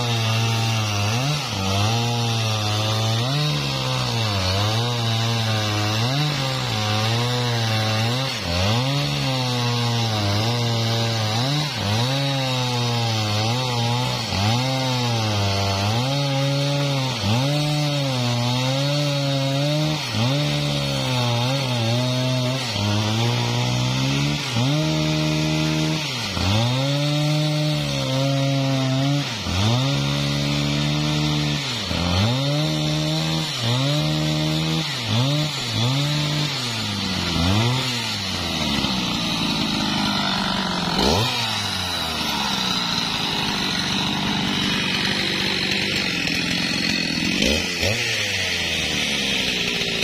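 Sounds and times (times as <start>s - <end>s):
chainsaw cutting log: 0.0s - 50.0s.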